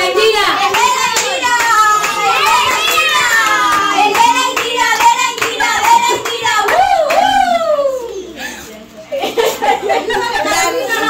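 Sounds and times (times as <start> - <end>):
children and adults singing: 0.0 - 8.2, 9.6 - 11.0
hands clapping: 0.7 - 7.3.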